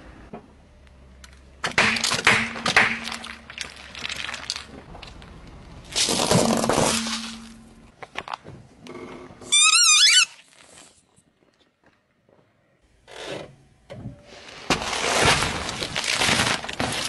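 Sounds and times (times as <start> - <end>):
plastic bottle crunching: 2.9 - 5.3, 5.9 - 7.6, 14.7 - 17.0
squeaky toys squealing: 9.5 - 10.4.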